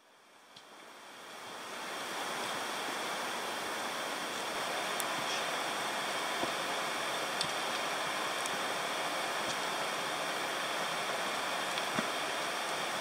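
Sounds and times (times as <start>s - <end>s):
mountain stream rushing: 0.1s - 13.0s.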